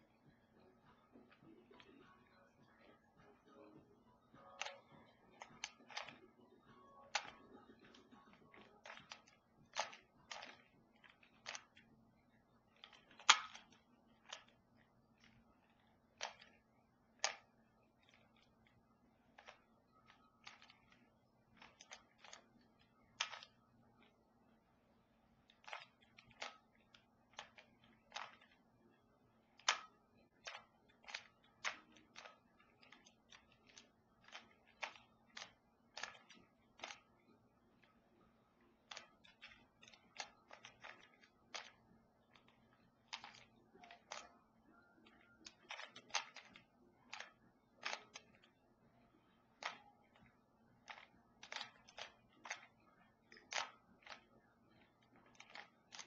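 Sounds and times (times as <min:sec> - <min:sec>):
plastic puzzle cube clicking: 0:04.3 - 0:24.2, 0:25.2 - 0:38.0, 0:38.6 - 0:56.0.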